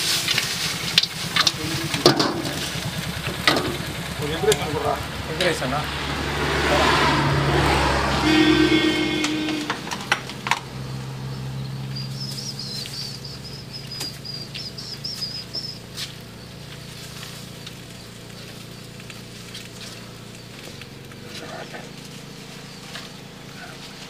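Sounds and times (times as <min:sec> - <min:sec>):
small bird twittering: 0:11.2 - 0:23.8.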